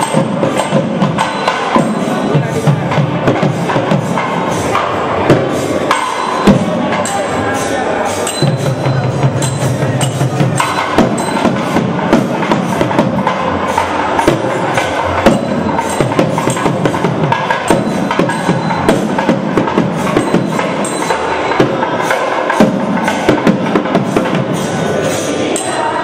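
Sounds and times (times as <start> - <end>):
fast dense drumming: 8.3 - 25.0.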